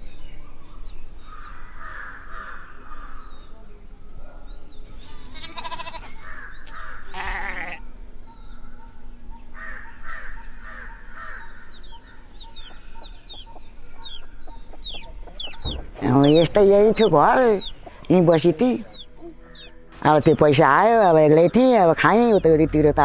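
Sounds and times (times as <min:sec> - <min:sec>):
loud wavering animal calls: 0:17.0 - 0:20.0.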